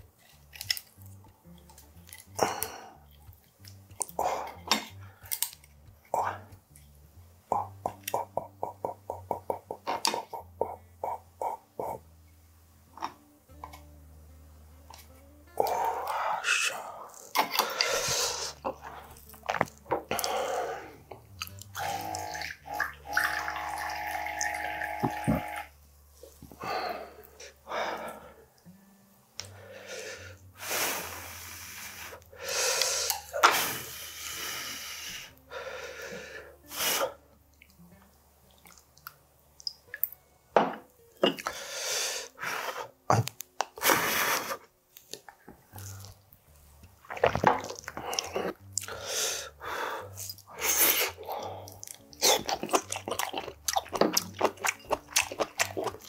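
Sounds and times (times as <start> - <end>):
slurps and mouth sounds: 21.4 - 25.6, 47.0 - 49.3, 50.2 - 56.0
electric dispenser whirring: 23.1 - 25.7.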